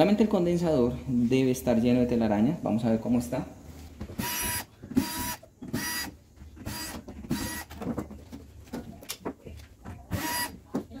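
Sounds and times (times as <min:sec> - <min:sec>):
electric screwdriver whirring: 0:04.2 - 0:07.8, 0:10.1 - 0:10.6.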